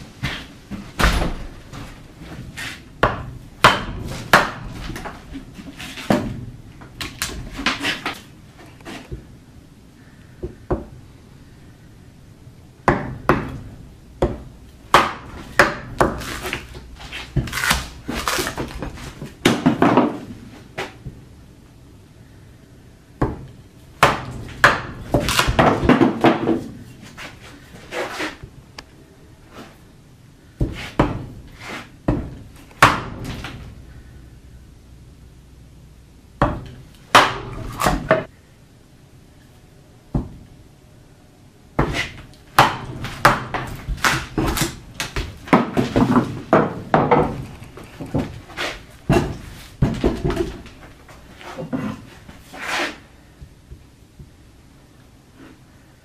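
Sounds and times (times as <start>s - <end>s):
wooden mallet striking axe: 3.0s - 4.7s, 14.2s - 16.2s, 23.2s - 26.6s, 36.4s - 38.3s, 42.6s - 44.7s.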